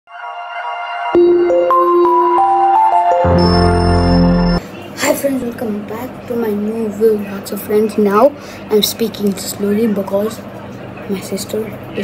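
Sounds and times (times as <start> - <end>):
bright chime-like notes: 1.2 - 4.6
deep sustained chord: 1.2 - 4.6.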